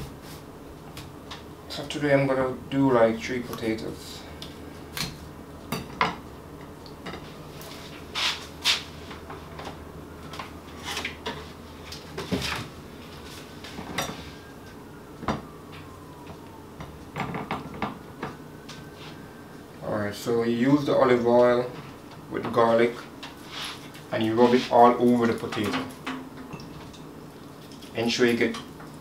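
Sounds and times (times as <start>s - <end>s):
dishes clinking and clattering: 25.6s - 27.1s.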